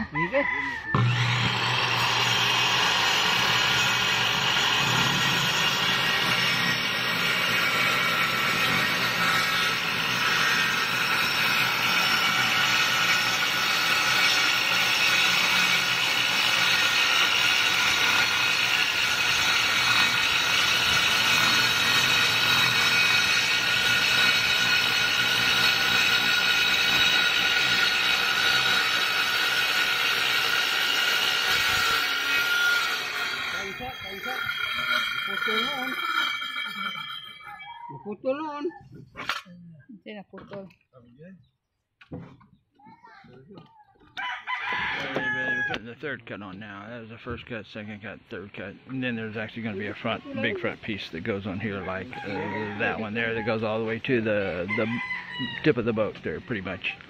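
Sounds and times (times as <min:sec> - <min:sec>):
circular saw cutting plywood: 0:00.8 - 0:37.8, 0:48.9 - 0:57.0.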